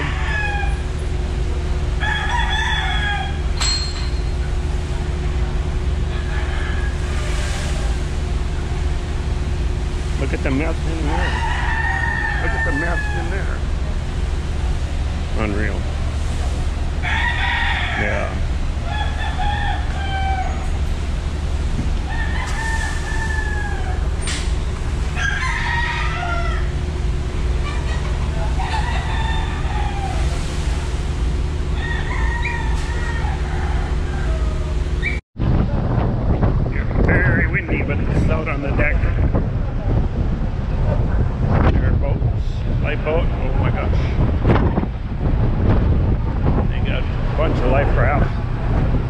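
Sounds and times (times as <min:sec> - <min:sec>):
rooster crowing: 0:00.0 - 0:01.2, 0:01.9 - 0:03.6, 0:06.1 - 0:08.0, 0:11.1 - 0:13.6, 0:17.0 - 0:20.9, 0:22.0 - 0:24.2, 0:25.0 - 0:27.0, 0:28.4 - 0:30.6, 0:31.7 - 0:35.1
low engine rumble: 0:00.0 - 0:49.0.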